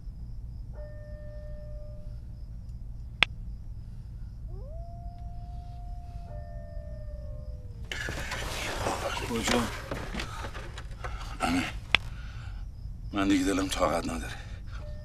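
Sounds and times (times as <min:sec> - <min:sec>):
wolves howling: 0:04.5 - 0:12.0.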